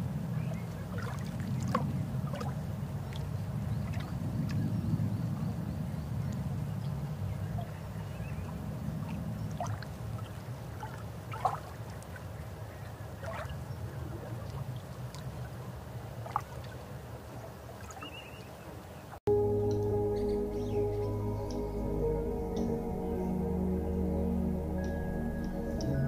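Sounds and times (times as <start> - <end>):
music: 19.3 - 26.0
underwater low rumble: 19.3 - 26.0.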